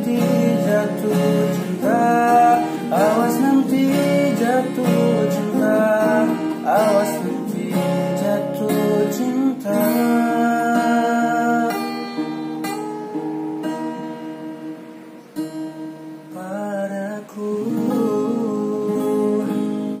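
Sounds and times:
man singing: 0.0 - 12.3, 16.3 - 20.0
acoustic guitar strumming: 0.0 - 20.0.

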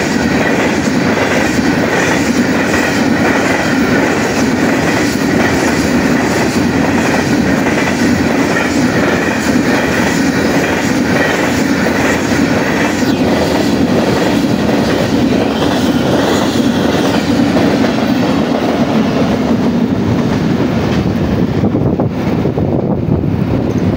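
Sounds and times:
freight train rushing past: 0.0 - 23.9.

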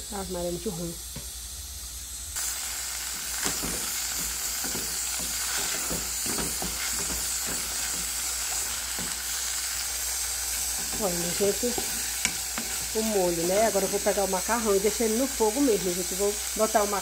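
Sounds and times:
vegetables sizzling in oil: 0.0 - 17.0
wooden spoon stirring in a pot: 3.4 - 9.4, 10.6 - 15.3.

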